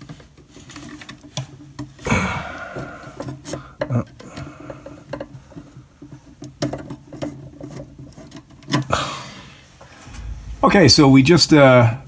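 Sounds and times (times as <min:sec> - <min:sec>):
small clicks and taps on metal box: 0:00.0 - 0:02.0, 0:03.1 - 0:08.9.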